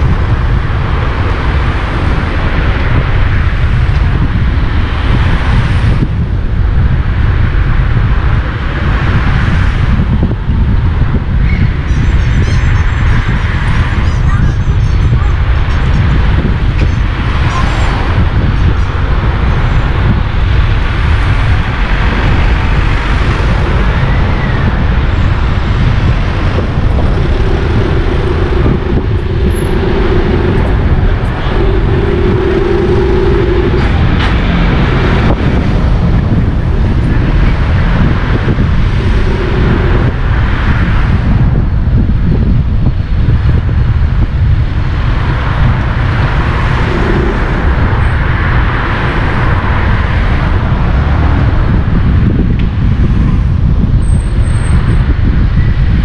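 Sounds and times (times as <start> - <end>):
car road noise: 0.0 - 56.0
wind noise on microphone: 0.0 - 56.0
plain hum: 23.3 - 41.4.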